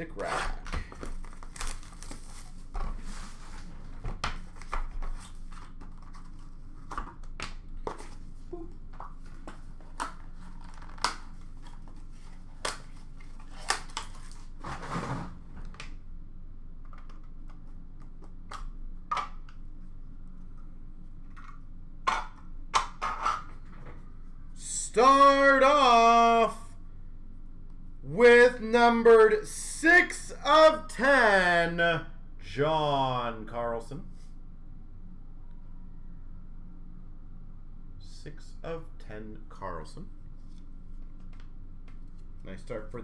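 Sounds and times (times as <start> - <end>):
packaging rustling: 0.8 - 2.7.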